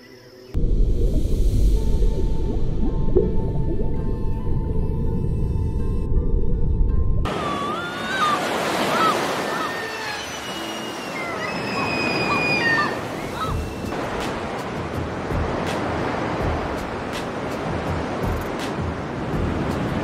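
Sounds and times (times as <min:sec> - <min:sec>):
water like gentle surf: 0:00.6 - 0:05.9, 0:07.2 - 0:20.0
low rumble: 0:00.6 - 0:07.3
whistled bird calls: 0:07.3 - 0:14.0.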